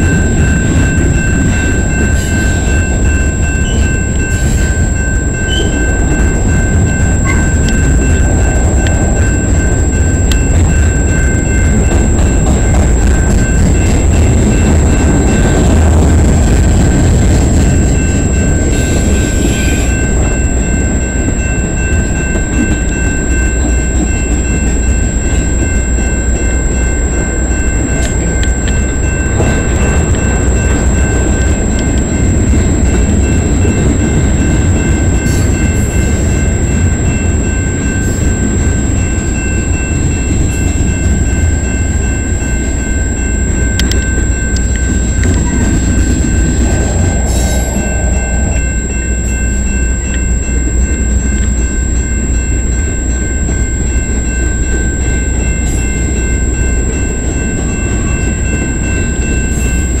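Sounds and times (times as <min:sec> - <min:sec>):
freight train wheels rumbling on rails: 0:00.0 - 1:00.0.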